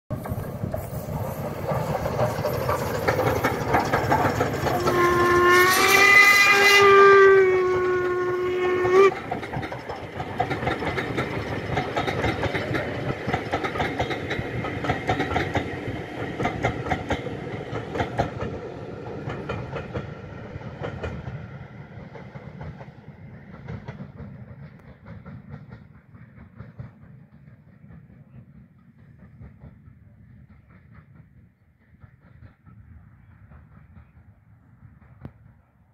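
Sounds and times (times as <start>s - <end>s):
train rumble and clatter on track: 0.1s - 35.9s
steam locomotive whistle: 4.6s - 9.2s.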